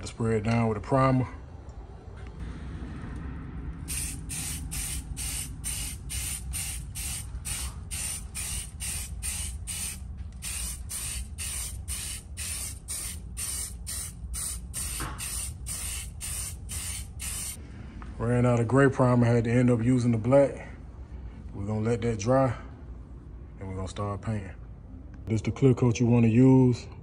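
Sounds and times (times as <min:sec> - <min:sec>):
aerosol can spraying: 0:03.9 - 0:17.6.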